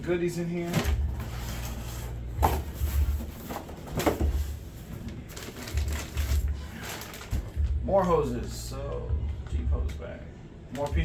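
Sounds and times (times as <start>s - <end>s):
cardboard boxes rustling: 0.6s - 7.6s.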